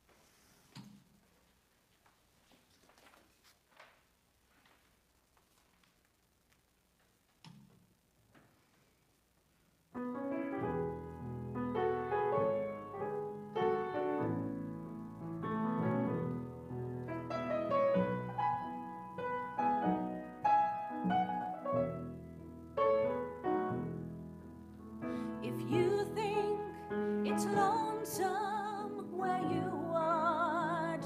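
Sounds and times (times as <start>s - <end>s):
grand piano piece: 9.9s - 31.0s.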